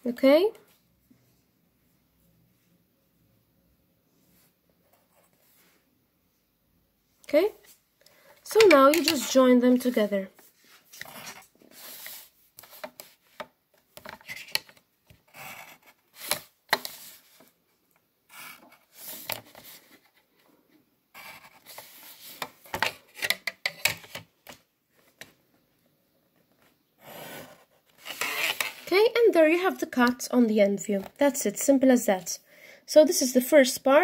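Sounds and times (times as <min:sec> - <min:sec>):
pencil scratching on paper: 0:15.3 - 0:16.0, 0:21.1 - 0:22.3.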